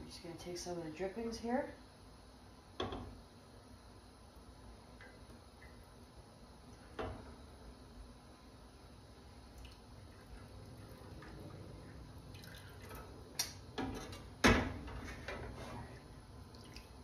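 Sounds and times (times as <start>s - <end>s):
drippings trickling into saucepan: 9.2s - 14.4s
spatula scraping pan: 14.8s - 16.0s.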